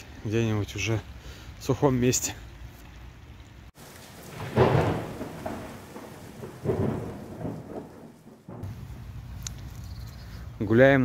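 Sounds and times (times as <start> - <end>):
steady rain: 0.0 - 10.5
thunder rolling: 3.8 - 9.3.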